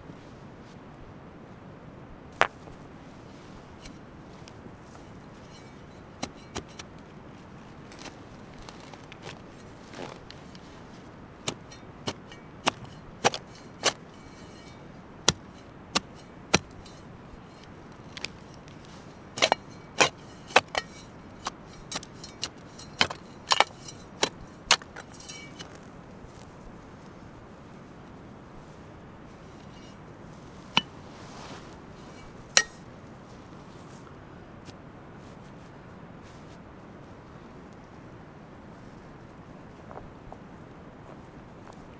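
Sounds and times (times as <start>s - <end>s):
shovel chopping into stony turf: 6.2s - 6.9s, 11.4s - 25.9s, 32.2s - 32.9s.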